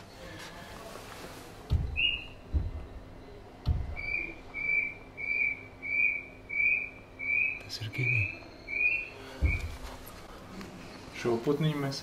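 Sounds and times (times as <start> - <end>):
low thump: 1.7 - 3.0, 3.6 - 4.2, 9.4 - 9.9.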